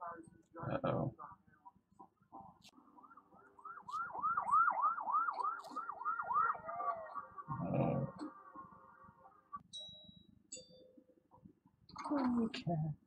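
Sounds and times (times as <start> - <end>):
police siren yelping and wailing: 2.8 - 9.5.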